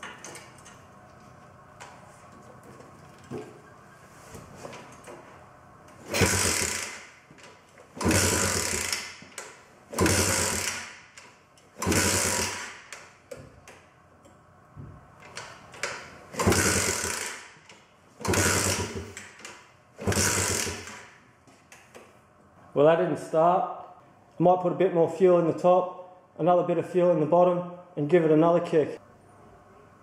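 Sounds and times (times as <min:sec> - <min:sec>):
small engine being kick-started: 0:06.0 - 0:11.0, 0:11.8 - 0:13.0, 0:16.3 - 0:17.6, 0:18.2 - 0:21.1.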